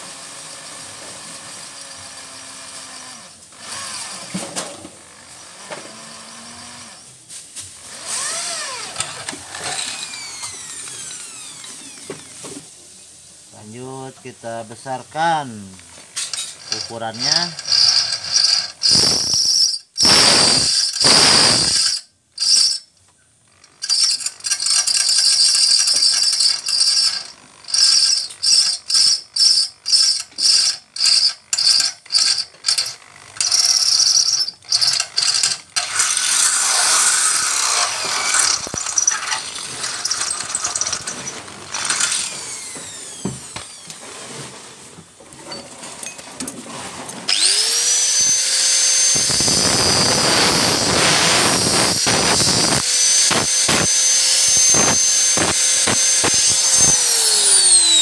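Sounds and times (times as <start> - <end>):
electric drill boring into steel: 0.0 - 4.4, 5.0 - 7.2, 7.8 - 12.5, 16.3 - 22.8, 23.6 - 44.1, 47.3 - 58.0
motor whining: 7.8 - 12.6, 16.6 - 22.0, 34.7 - 44.0, 47.3 - 58.0.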